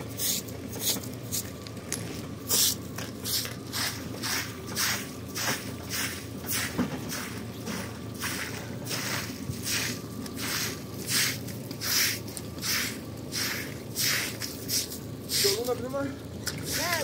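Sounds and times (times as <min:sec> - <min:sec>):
broom sweeping water on concrete: 0:00.1 - 0:01.5, 0:02.5 - 0:15.8, 0:16.6 - 0:17.0.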